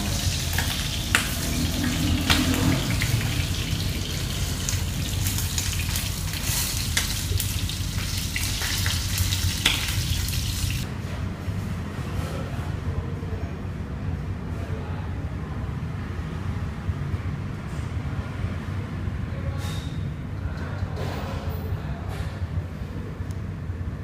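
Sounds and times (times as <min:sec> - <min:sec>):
oil sizzling in a frying pan: 0:00.0 - 0:10.8.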